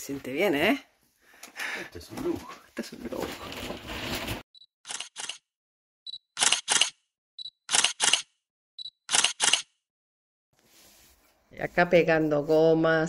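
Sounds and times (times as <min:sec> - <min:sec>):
camera shutter click: 0:06.4 - 0:07.0, 0:07.7 - 0:08.3, 0:09.1 - 0:09.7.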